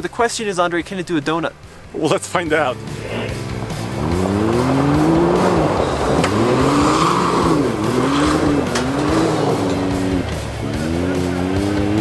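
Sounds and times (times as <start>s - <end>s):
tyres spraying gravel: 2.0s - 12.0s
engine revving: 2.5s - 12.0s.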